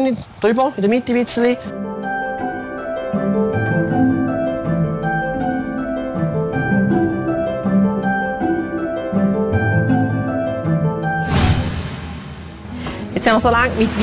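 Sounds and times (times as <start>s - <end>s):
plucked strings music: 0.7s - 11.4s.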